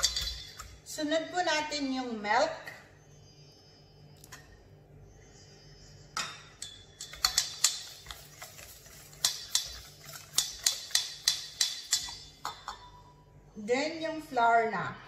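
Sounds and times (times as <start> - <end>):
wire whisk clicking against metal bowl: 9.2 - 12.2.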